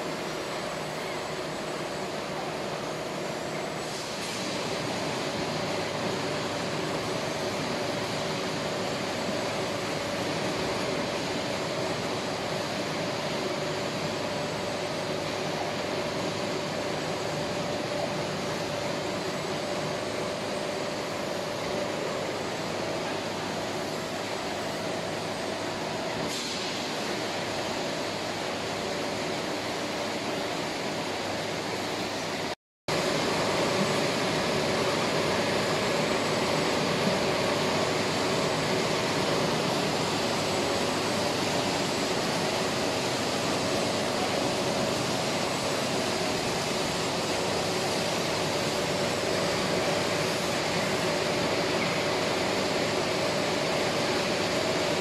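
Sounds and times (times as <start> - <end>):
machinery humming: 0.0 - 55.0.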